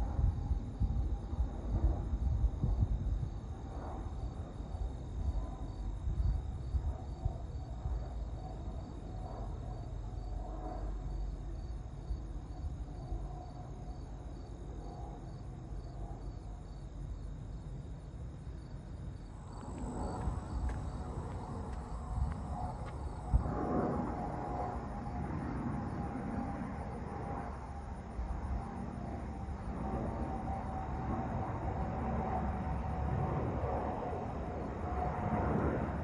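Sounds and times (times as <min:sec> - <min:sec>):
insects chirping: 0:00.2 - 0:36.0
low rumble: 0:19.0 - 0:25.8.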